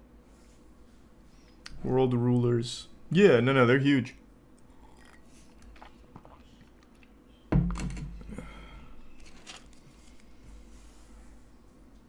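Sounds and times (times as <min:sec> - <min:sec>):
sudden thump: 0:07.5 - 0:08.1.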